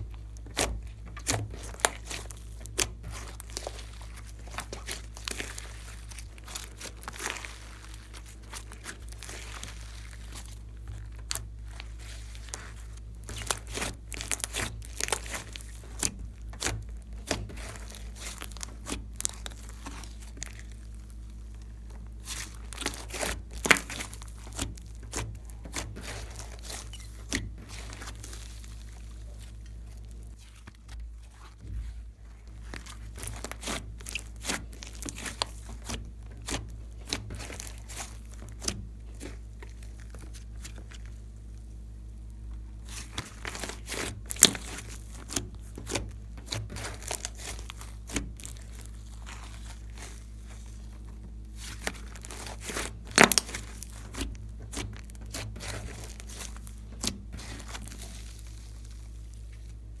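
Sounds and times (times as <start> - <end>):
slime soft tearing: 0.1 - 60.0
slime crackling pops: 0.2 - 21.2, 32.7 - 41.2, 51.6 - 58.9.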